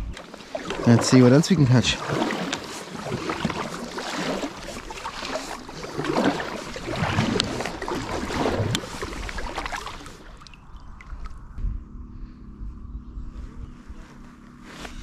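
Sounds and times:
kayak paddle splashing in water: 0:00.0 - 0:11.3.

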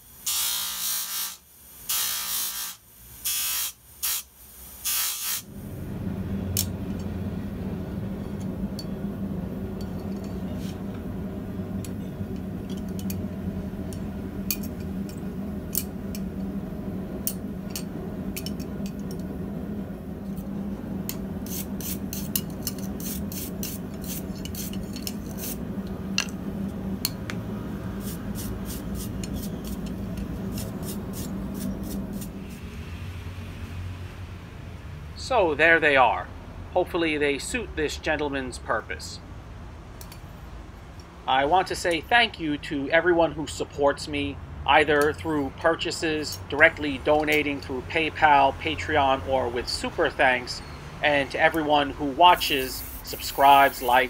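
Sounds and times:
steady low hum: 0:01.1 - 0:54.0
metal on bench grinder wheel: 0:05.2 - 0:19.4, 0:20.2 - 0:32.6
wire brush scrubbing steel: 0:21.1 - 0:25.7, 0:27.9 - 0:32.6, 0:52.2 - 0:54.0.

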